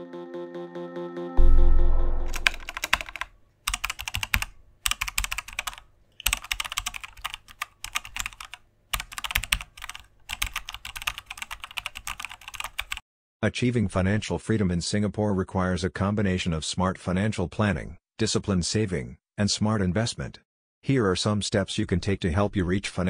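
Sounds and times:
deep boom: 0:01.4 - 0:02.6
keyboard typing: 0:02.2 - 0:13.0.

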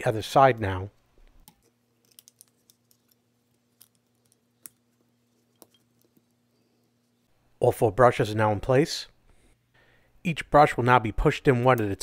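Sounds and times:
small metal parts clicking: 0:01.4 - 0:04.9.

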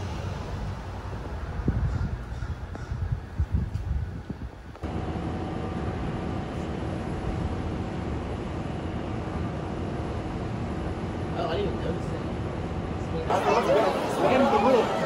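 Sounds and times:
wind rumbling on microphone: 0:00.0 - 0:04.9
city hum with faint tones: 0:00.0 - 0:15.0.

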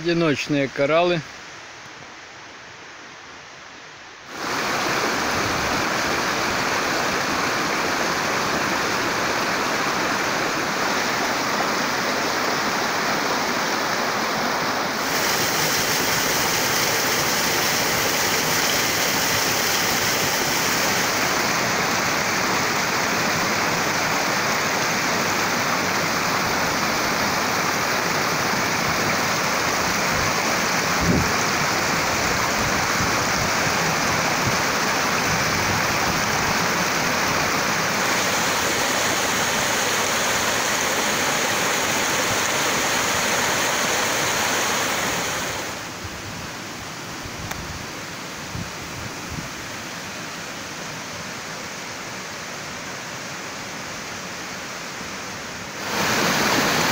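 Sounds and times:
stream rushing over rocks: 0:04.2 - 0:56.9
waterfall splashing into pool: 0:04.3 - 0:46.0, 0:55.7 - 0:56.9.

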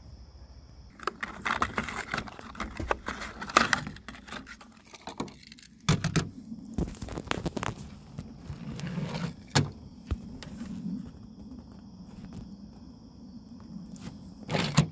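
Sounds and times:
plastic blister pack crackling: 0:00.9 - 0:05.6, 0:06.8 - 0:08.2.

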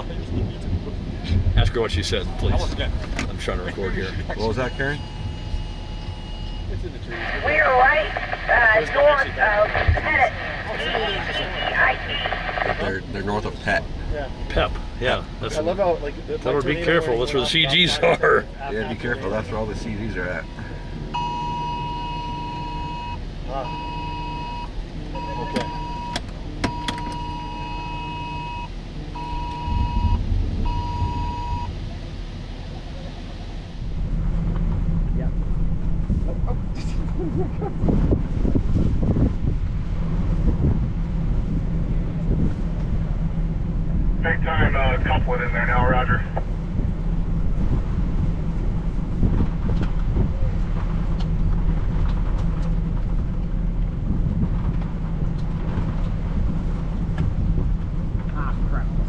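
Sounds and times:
low rumble: 0:00.0 - 0:59.0
vehicle engine hum: 0:00.0 - 0:59.0
electronic alert beeping: 0:21.2 - 0:31.7.

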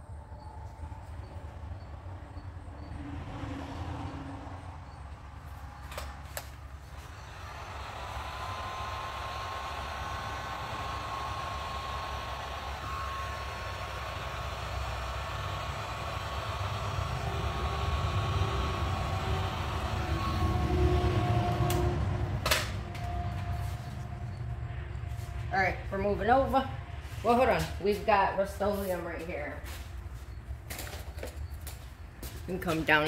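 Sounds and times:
heat gun fan whining: 0:04.8 - 0:33.0.

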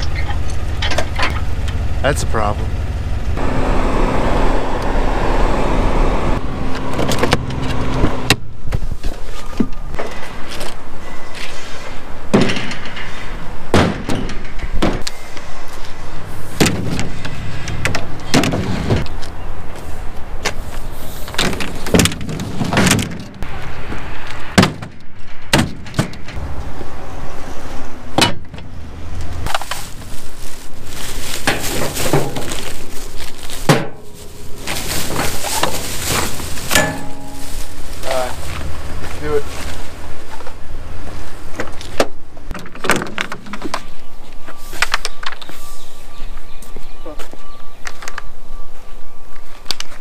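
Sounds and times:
steady low rumble: 0:00.0 - 0:08.6, 0:26.1 - 0:41.6
materials knocking into a trailer: 0:12.3 - 0:15.1, 0:16.6 - 0:19.0, 0:21.3 - 0:23.4, 0:24.6 - 0:26.4, 0:31.4 - 0:32.8, 0:33.6 - 0:38.3.

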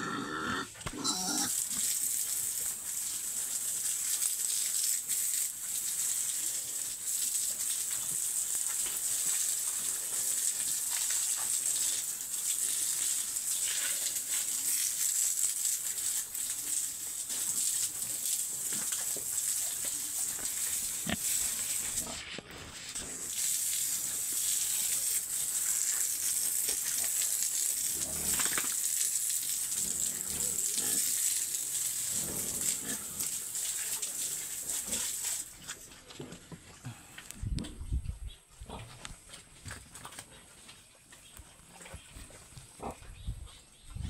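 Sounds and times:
pigs grunting: 0:00.0 - 0:01.6, 0:42.7 - 0:43.1
pigs shuffling on wet concrete: 0:00.8 - 0:44.0.

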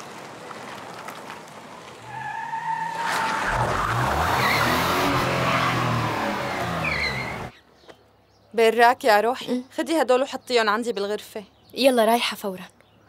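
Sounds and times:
car engine revving loud: 0:03.1 - 0:07.5
tyre squeal: 0:06.6 - 0:07.5.

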